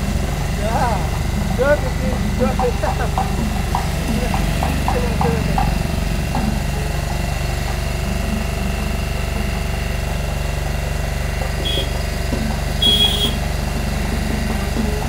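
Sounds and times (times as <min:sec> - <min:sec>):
small engine droning: 0:00.0 - 0:15.0
short high-pitched tones: 0:12.8 - 0:13.4.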